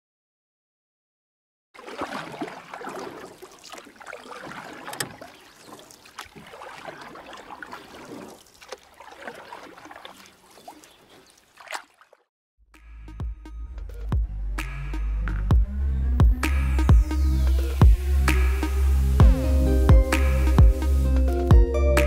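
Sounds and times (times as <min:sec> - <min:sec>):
water lapping and splashing: 0:01.8 - 0:12.3.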